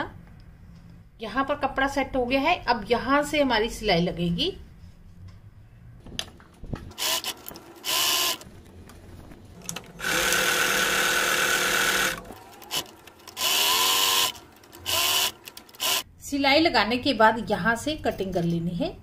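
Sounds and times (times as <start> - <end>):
sewing machine stitching: 6.9 - 8.5, 9.7 - 16.0.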